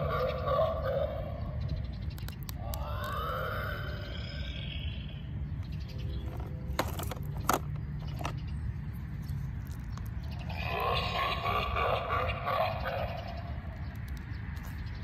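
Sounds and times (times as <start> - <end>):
steady low rumble: 0.0 - 15.0
electronic toy scream: 2.6 - 4.9
plastic toys clicking: 6.2 - 8.4.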